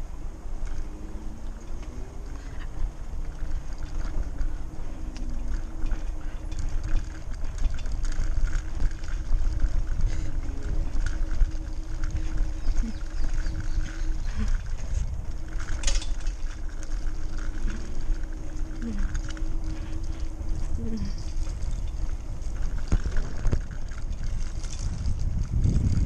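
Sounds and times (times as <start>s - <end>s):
bike rattles and clicks: 0.0s - 26.0s
bike tyres rumbling: 0.0s - 26.0s
faint steady hum: 0.0s - 26.0s
wind on microphone: 0.0s - 26.0s.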